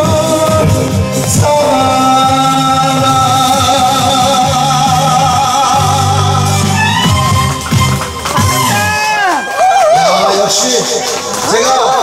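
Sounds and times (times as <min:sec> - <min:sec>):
man singing long note with vibrato: 0:00.0 - 0:07.0
recorded backing track: 0:00.0 - 0:11.9.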